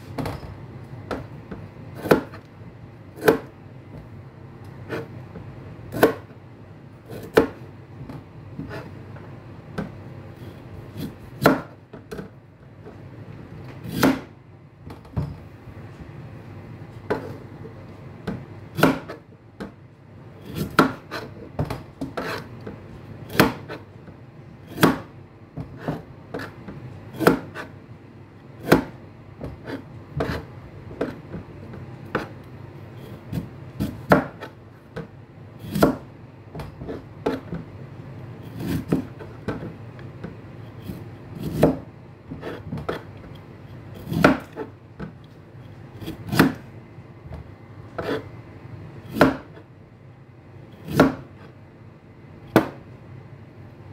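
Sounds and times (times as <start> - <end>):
knife chopping on cutting board: 2.0 - 2.5, 3.2 - 3.6, 4.8 - 5.2, 5.9 - 6.4, 7.1 - 8.9, 10.9 - 12.4, 13.8 - 14.4, 18.2 - 19.7, 20.4 - 23.9, 24.7 - 27.7, 28.6 - 32.4, 33.2 - 37.6, 38.5 - 39.8, 40.8 - 43.1, 44.0 - 45.2, 46.0 - 46.7, 48.0 - 48.3, 49.1 - 49.6, 50.8 - 51.5, 52.5 - 52.8.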